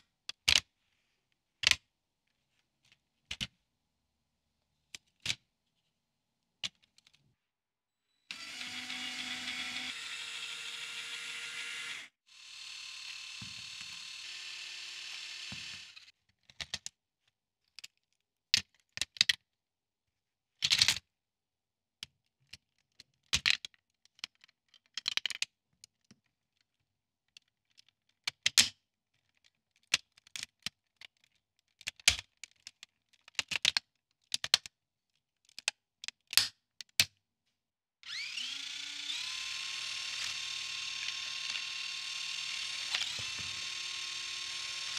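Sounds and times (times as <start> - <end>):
plastic parts clicking together: 6.6 - 7.2, 27.4 - 34.7, 42.8 - 43.6
small electric motor running: 8.3 - 16.1, 38.0 - 44.9.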